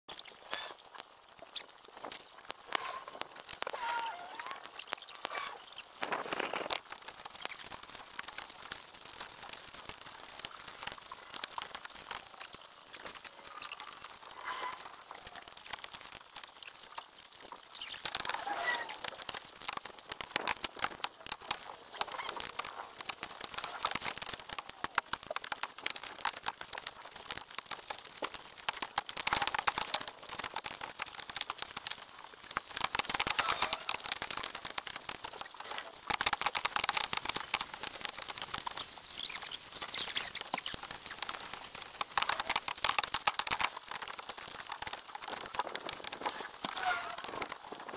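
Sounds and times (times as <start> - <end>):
short high squeaks: 2.7 - 5.9, 17.7 - 19.0, 39.0 - 41.2, 46.7 - 47.3
rapid clicks and knocks: 4.6 - 47.9.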